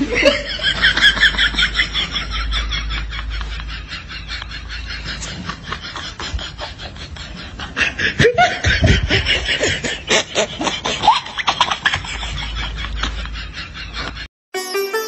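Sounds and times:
person giggling: 0.0s - 14.3s
music: 14.5s - 15.0s.

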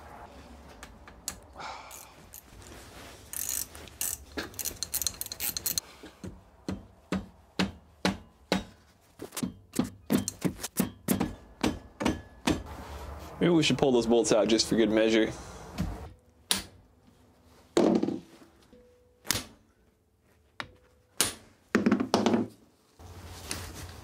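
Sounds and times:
ratchet wrench clicking: 1.3s - 2.4s, 3.3s - 5.8s.

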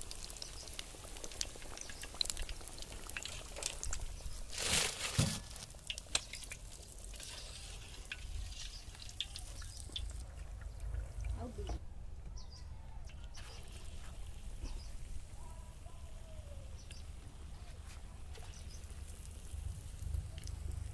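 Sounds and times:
hot oil crackling: 0.0s - 11.8s, 13.3s - 20.9s
small pops and clicks: 5.8s - 6.6s.

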